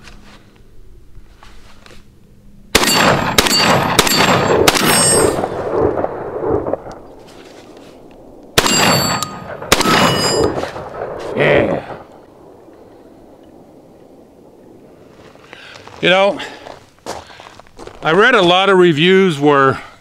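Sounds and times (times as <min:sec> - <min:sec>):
shotgun shots echoing: 0:02.7 - 0:07.1, 0:08.2 - 0:12.8
steel plate targets ringing: 0:02.8 - 0:05.4, 0:08.6 - 0:10.7.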